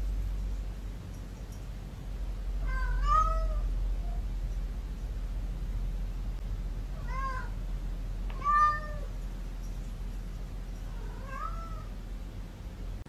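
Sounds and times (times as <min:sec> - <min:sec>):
cat meowing: 0:02.6 - 0:03.7, 0:07.0 - 0:07.6, 0:08.3 - 0:09.1, 0:10.9 - 0:11.9.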